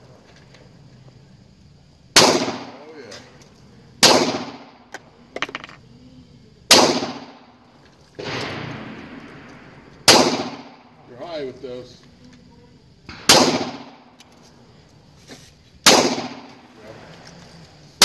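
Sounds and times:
pistol shots: 2.1 - 3.0, 4.0 - 4.9, 6.7 - 7.5, 8.2 - 11.0, 13.1 - 14.2, 15.8 - 16.7.

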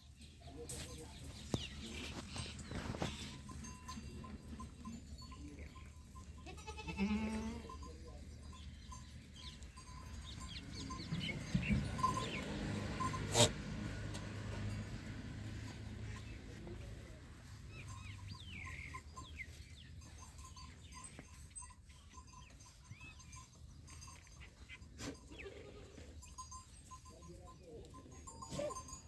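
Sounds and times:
goats bleating: 6.3 - 7.8, 25.0 - 26.2.

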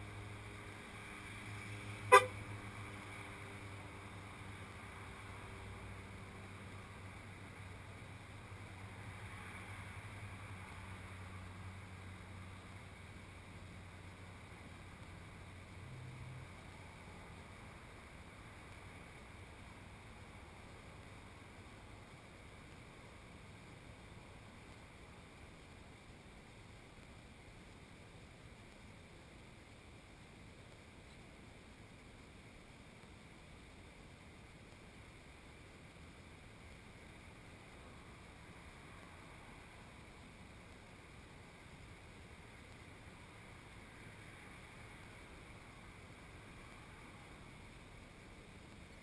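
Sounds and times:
car horn chirp: 2.1 - 2.4.

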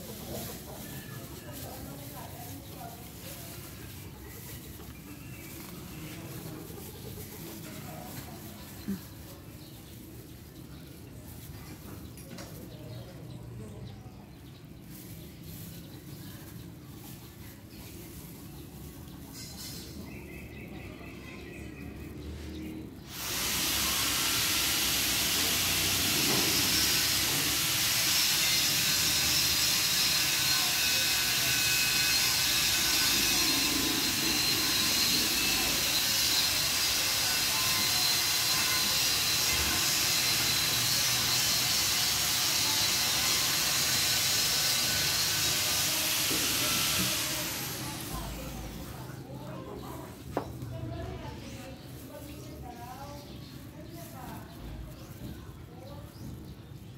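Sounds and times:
steady loud hiss: 22.8 - 50.0.

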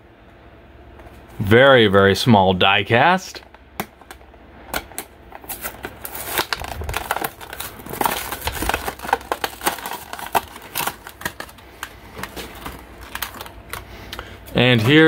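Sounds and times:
plastic packaging crinkling: 3.9 - 15.0.

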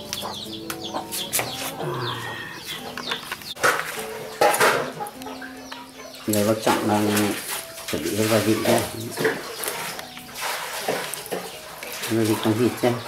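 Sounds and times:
chickens clucking: 0.0 - 13.0
small birds chirping: 0.0 - 13.0.

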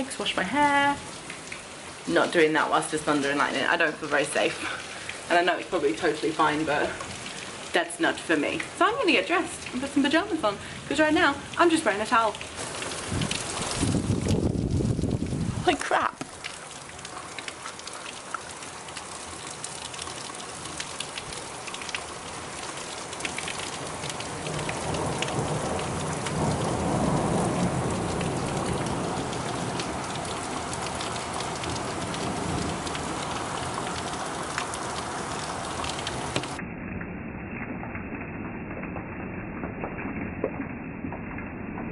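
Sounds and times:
heavy rain falling: 0.0 - 37.0
rumble of thunder: 12.6 - 15.6, 23.9 - 34.1.

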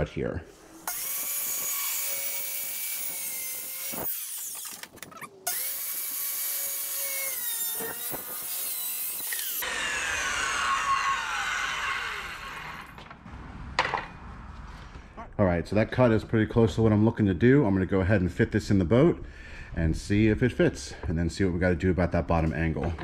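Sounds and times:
circular saw cutting plywood: 0.5 - 13.0
saw blade winding down whine: 0.5 - 13.0.

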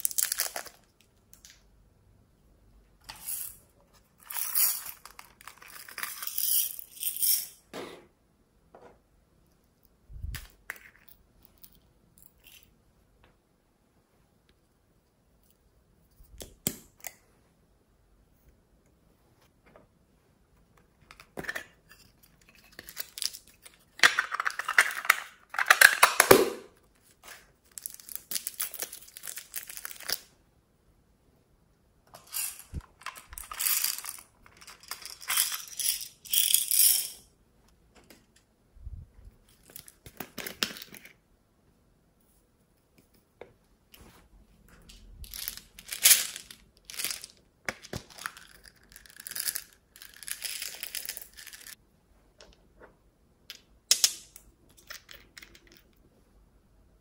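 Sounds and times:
plastic containers rustling and clicking: 22.4 - 26.4.

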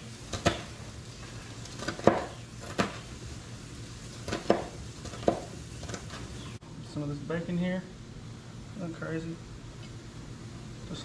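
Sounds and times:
knife chopping on plastic cutting board: 1.8 - 2.9.

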